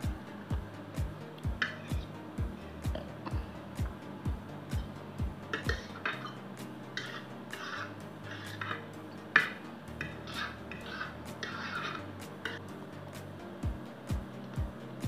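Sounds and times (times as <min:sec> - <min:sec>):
spoon and fork scraping platter: 0:07.0 - 0:12.6.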